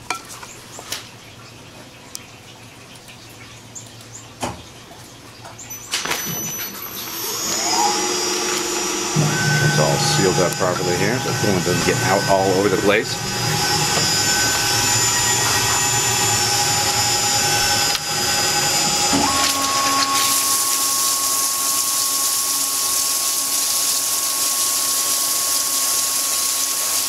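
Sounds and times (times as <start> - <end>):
milling machine whine: 5.6 - 27.0
hissing coolant spray: 19.8 - 27.0.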